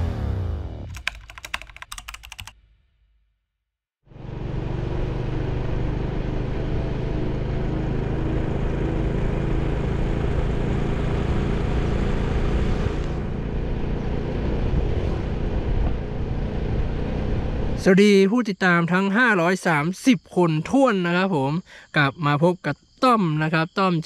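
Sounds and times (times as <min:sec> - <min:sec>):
motorcycle engine cruising: 0:04.1 - 0:17.8
wind rushing on microphone: 0:14.6 - 0:17.6.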